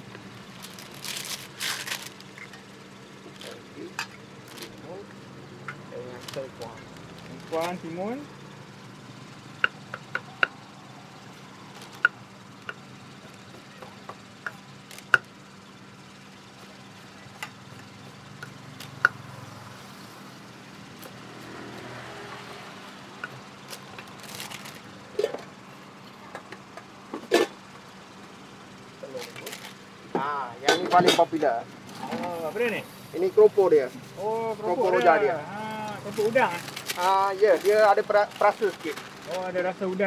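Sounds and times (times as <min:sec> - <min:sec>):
plastic bags crinkling: 0:00.4 - 0:02.5, 0:06.2 - 0:07.8, 0:23.7 - 0:25.0, 0:36.0 - 0:40.0.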